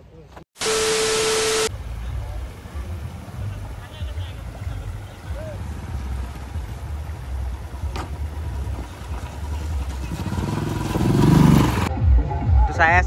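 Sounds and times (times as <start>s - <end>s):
vehicle engine revving: 0.6s - 11.9s
low uneven rumble: 1.8s - 11.9s.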